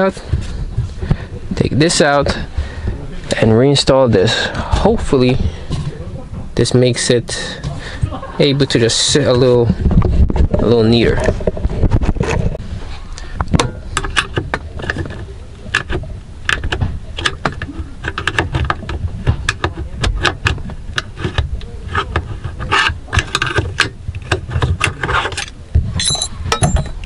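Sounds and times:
metal clicks taps and scrapes: 13.2 - 27.0.

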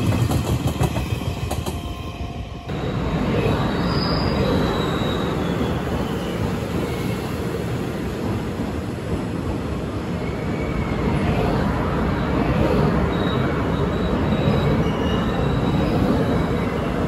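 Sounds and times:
train wheels rumbling on rail: 0.0 - 17.0
faint high squeals: 3.3 - 7.4, 10.0 - 17.0.

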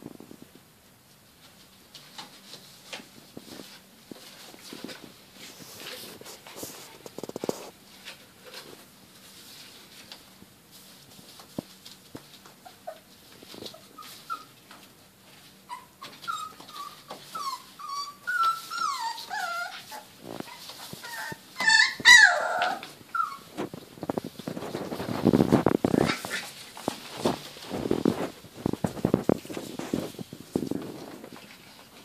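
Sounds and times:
rustling through shredded paper: 1.2 - 32.0
puppy yelp: 12.6 - 14.6, 15.6 - 23.6
puppies squeaking and whimpering: 12.6 - 14.7, 15.6 - 23.7.

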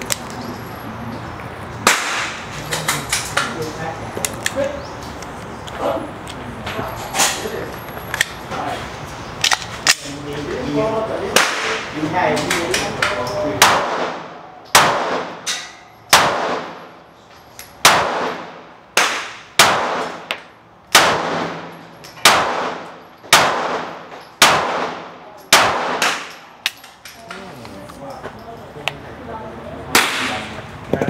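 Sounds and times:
pistol shots with ringing echo: 1.8 - 2.5, 11.3 - 12.0, 13.6 - 17.0, 17.8 - 26.8, 29.9 - 30.5.

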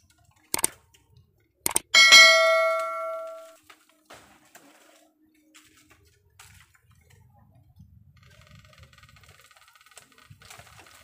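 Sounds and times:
dry bamboo crackling and snapping: 3.6 - 7.2, 9.3 - 11.0.

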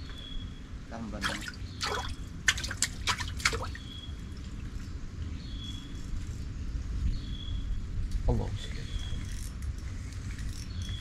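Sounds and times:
water dripping into water: 1.2 - 4.8.

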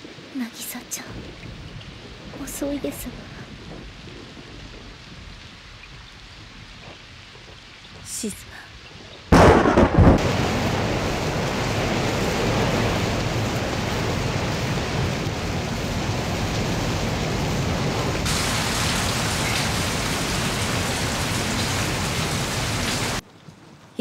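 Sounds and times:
heavy rain pouring: 0.0 - 24.0.

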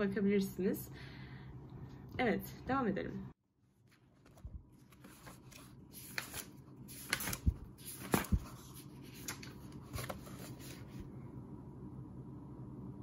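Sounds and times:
book pages rustling: 3.7 - 11.1.

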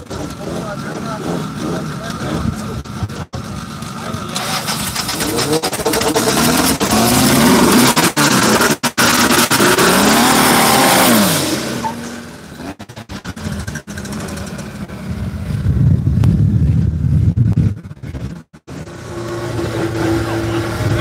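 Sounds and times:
car engine revving: 0.0 - 15.6, 17.7 - 21.0
deep engine rumble: 13.3 - 21.0.

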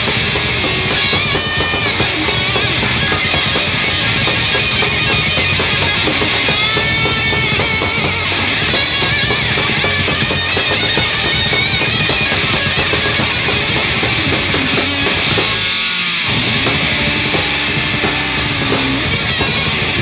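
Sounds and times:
held bending guitar note: 0.0 - 20.0
thrash metal band playing live: 0.0 - 20.0.

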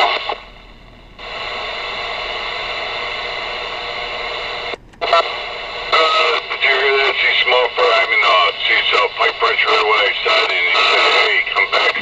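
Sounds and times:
faint steady tones: 0.0 - 12.0
radio static hiss: 0.0 - 12.0
radio click: 3.6 - 12.0.

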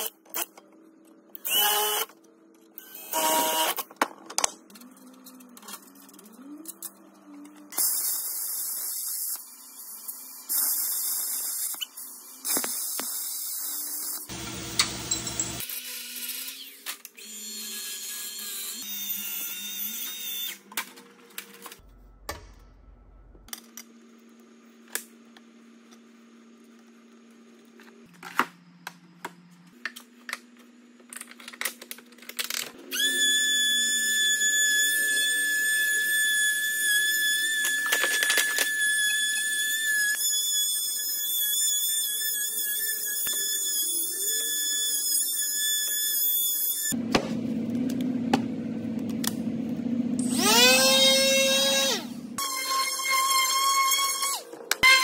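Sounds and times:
router whining cutting wood: 50.2 - 55.0.

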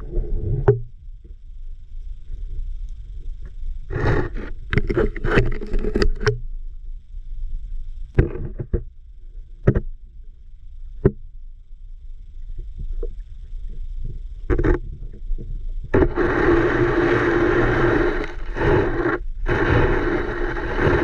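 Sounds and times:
muffled underwater rumble: 0.0 - 21.0.

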